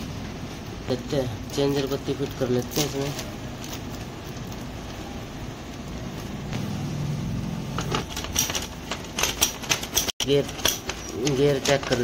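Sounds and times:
road traffic noise: 0.0 - 12.0
vehicle engine hum: 3.3 - 8.8.

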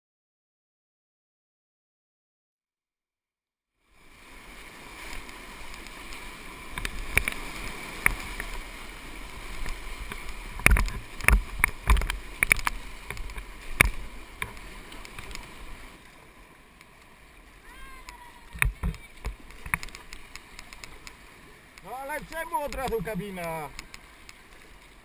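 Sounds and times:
rushing whitewater: 3.9 - 25.0
water and paddle knocks and splashes: 4.6 - 16.0, 17.9 - 25.0.

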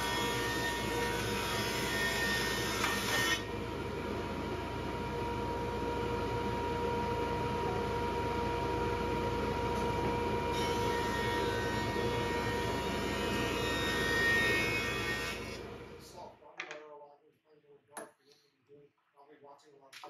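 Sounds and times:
dust collector running: 0.0 - 16.0
thickness planer whine: 0.0 - 16.0.

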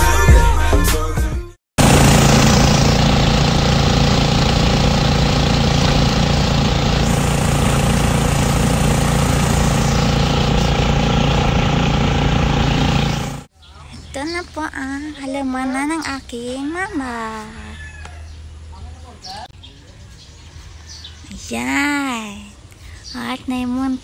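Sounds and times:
vehicle engine running: 1.8 - 13.5.

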